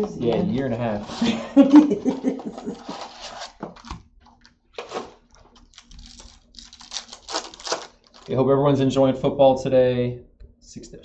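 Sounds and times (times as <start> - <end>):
foil wrapper crinkling and tearing: 2.8 - 8.4.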